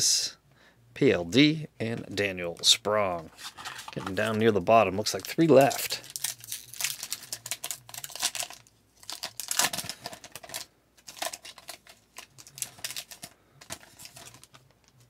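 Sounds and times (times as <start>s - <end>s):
foil wrapper crinkling and tearing: 3.4s - 15.0s.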